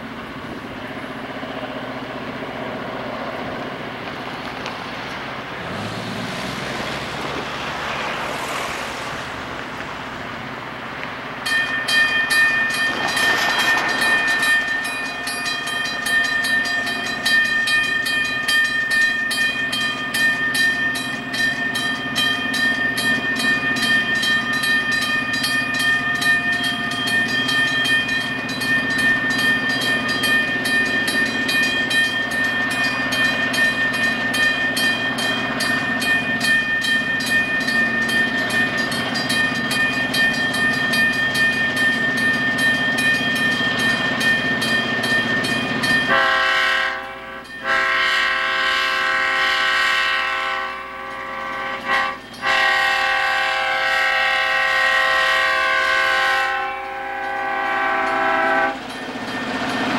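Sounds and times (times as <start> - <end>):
diesel locomotive pulsing: 0.0 - 59.9
multi-chime air horn blasts: 46.0 - 58.8.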